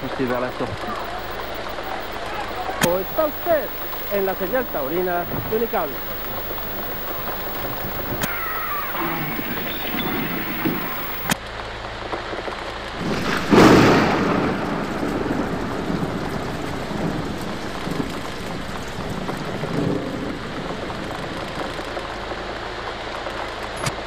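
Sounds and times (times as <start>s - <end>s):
steady rain: 0.0s - 11.4s, 13.0s - 22.0s.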